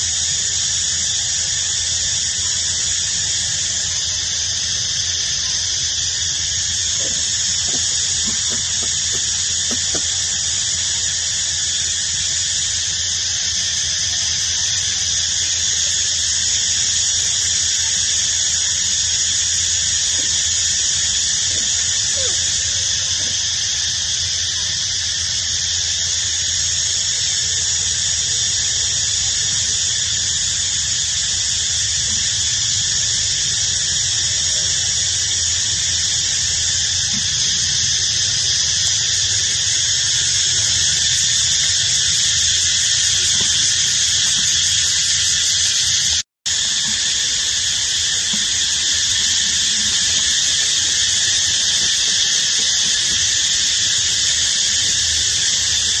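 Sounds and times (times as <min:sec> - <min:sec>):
cicadas buzzing: 0:00.0 - 0:56.0.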